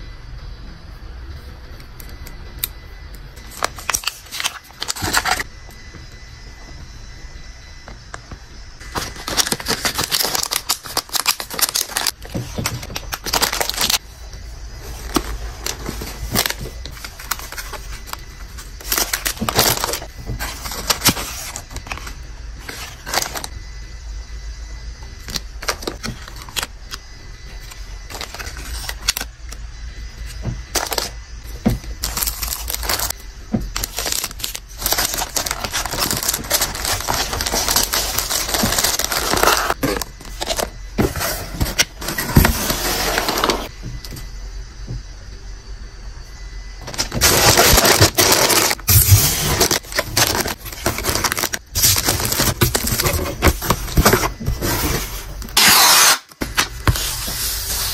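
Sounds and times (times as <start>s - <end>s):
plastic pouches crinkling: 3.4s - 5.4s, 8.8s - 14.0s, 14.9s - 23.5s, 27.6s - 29.3s, 30.7s - 31.1s, 32.0s - 33.1s, 33.7s - 40.7s, 46.8s - 56.0s
tissue paper rustling: 33.8s - 39.8s, 47.0s - 55.9s.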